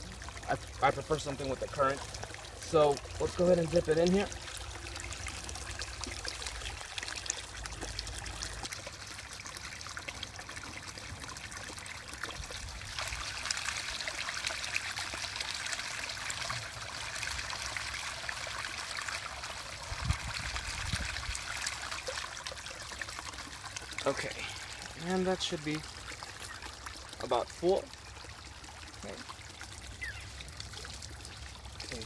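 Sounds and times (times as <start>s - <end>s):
stream water trickling: 0.0s - 32.0s.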